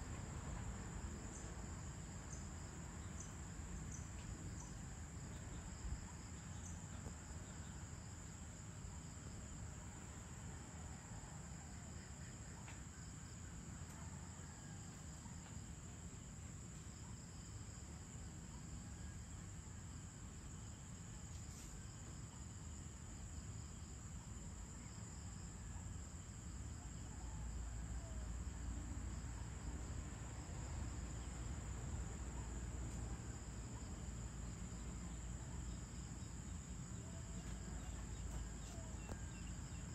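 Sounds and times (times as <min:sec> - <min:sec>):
crickets trilling: 0:17.0 - 0:39.9.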